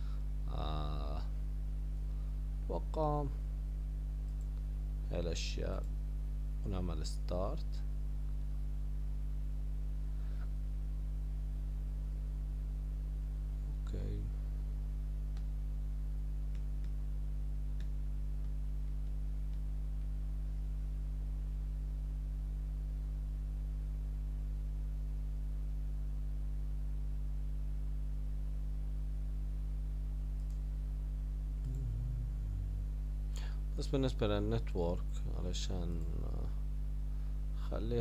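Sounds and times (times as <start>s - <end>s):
low electrical hum: 0.0s - 38.0s
faint clicks: 4.2s - 4.7s, 30.4s - 30.7s, 31.6s - 31.9s.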